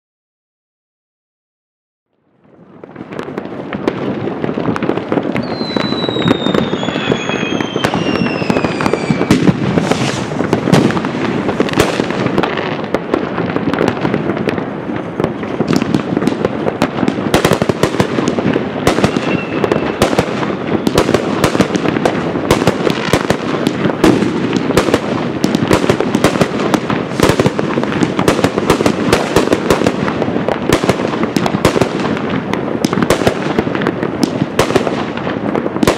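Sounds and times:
fireworks crackling and banging: 2.2 - 35.9
high falling whistles: 5.4 - 10.2, 19.1 - 20.0.

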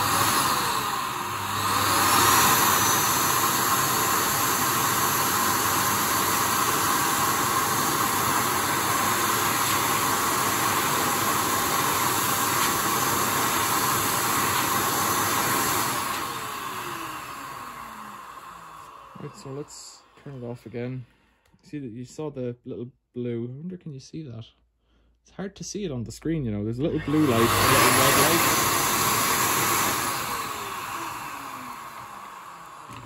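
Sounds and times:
motor spinning down: 0.0 - 20.1, 26.9 - 33.0
hand dryer running: 0.0 - 20.8, 26.9 - 33.0.

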